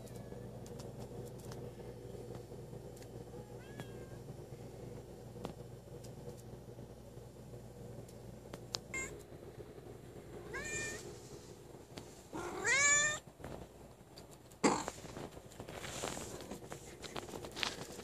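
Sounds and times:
cat meowing: 0:03.4 - 0:04.2, 0:10.5 - 0:11.0, 0:12.4 - 0:13.2.

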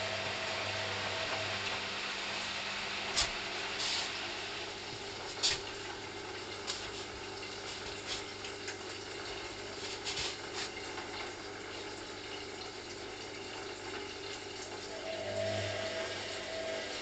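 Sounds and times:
low motor hum: 0:00.0 - 0:03.8, 0:14.9 - 0:17.0
water sloshing in washing machine drum: 0:03.1 - 0:17.0.

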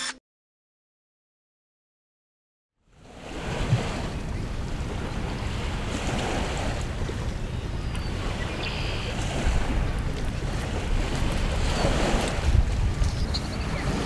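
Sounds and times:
wind: 0:02.8 - 0:14.0
wind rumble on microphone: 0:02.9 - 0:14.0.

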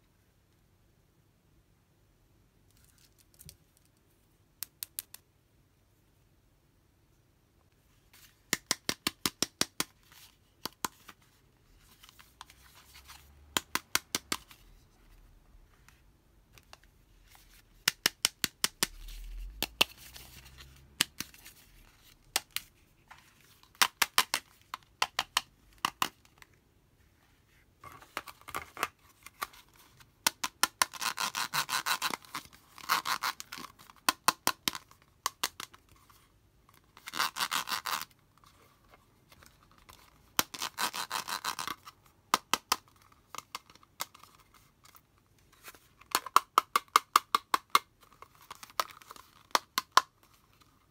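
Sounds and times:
nails scratching ribbed plastic: 0:30.3 - 0:34.5, 0:37.0 - 0:38.2, 0:40.4 - 0:41.9.

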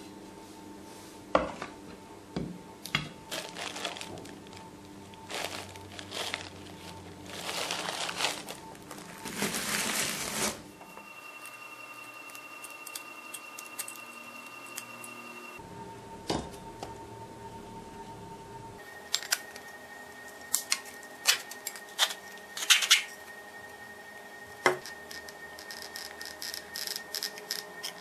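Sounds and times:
plastic bag of gravel crinkling: 0:03.3 - 0:10.6.

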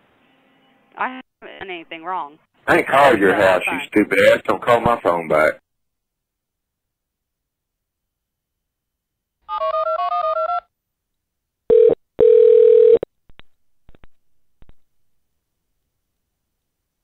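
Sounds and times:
phone ring tone: 0:09.5 - 0:10.7, 0:11.7 - 0:13.1
touch-tone dialing beeps: 0:11.7 - 0:13.0.

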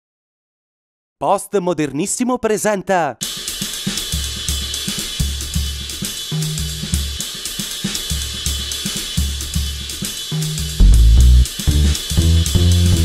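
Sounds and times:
drum kit hi-hat ticks: 0:03.2 - 0:13.0
low bass notes: 0:10.8 - 0:13.0.

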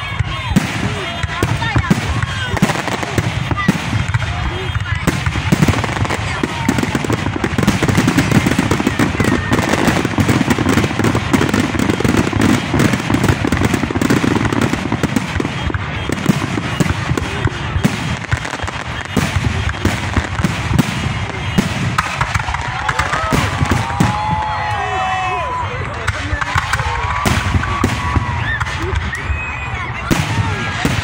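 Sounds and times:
fireworks bangs and crackling: 0:00.0 - 0:31.0.

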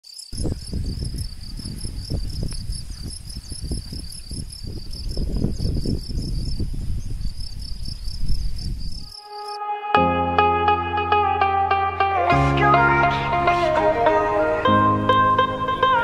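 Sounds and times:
insects chirping: 0:00.0 - 0:09.6.

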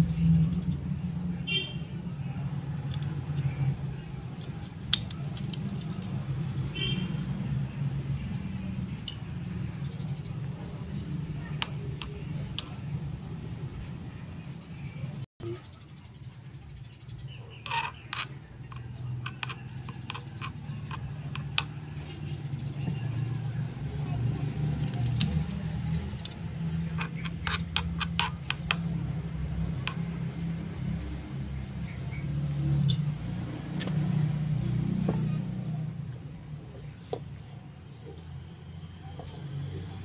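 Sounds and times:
metal spatula scraping wok: 0:17.5 - 0:21.6, 0:26.8 - 0:28.8.

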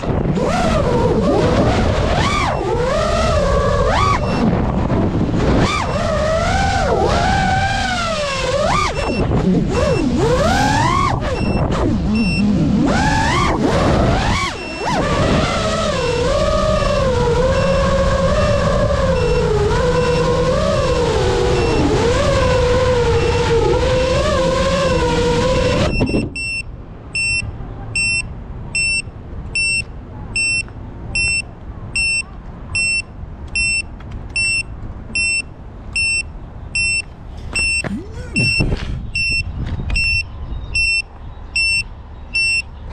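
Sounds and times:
drone motors whining: 0:00.0 - 0:26.6, 0:36.8 - 0:41.0
buzzer beeping: 0:11.4 - 0:12.5, 0:25.9 - 0:42.7.

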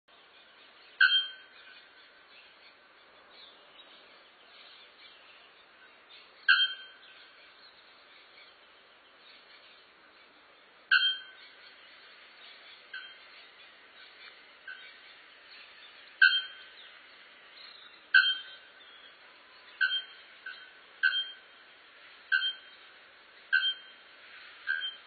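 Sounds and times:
bellbird bell-like calls: 0:01.0 - 0:01.6, 0:06.5 - 0:07.2, 0:10.9 - 0:11.6, 0:12.9 - 0:13.2, 0:16.2 - 0:16.7, 0:18.2 - 0:18.7, 0:19.8 - 0:21.5, 0:22.3 - 0:22.8, 0:23.5 - 0:24.0, 0:24.7 - 0:25.0.

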